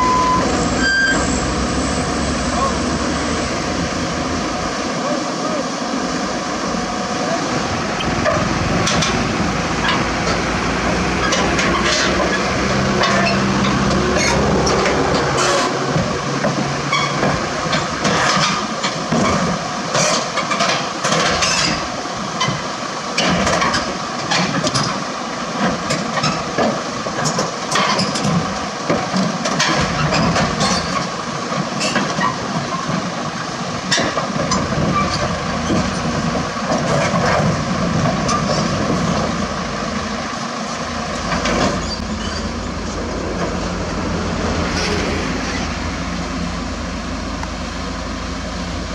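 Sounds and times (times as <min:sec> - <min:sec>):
engine running low: 0:00.0 - 0:48.9.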